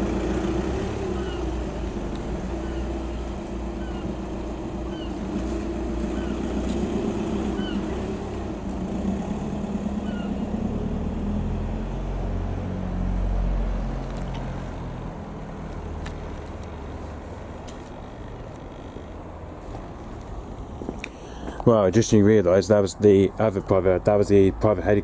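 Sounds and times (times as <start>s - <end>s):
bird chirps: 2.6s - 4.2s, 6.1s - 6.5s, 7.5s - 8.1s, 10.0s - 10.4s.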